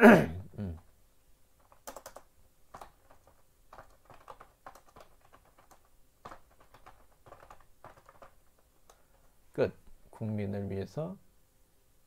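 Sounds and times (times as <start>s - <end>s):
keyboard typing: 1.6s - 9.2s.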